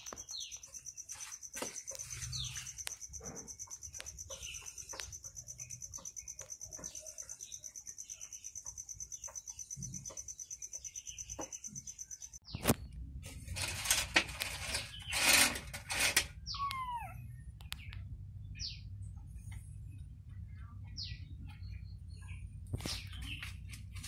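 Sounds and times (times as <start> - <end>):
kitten mewing: 16.5 - 17.3.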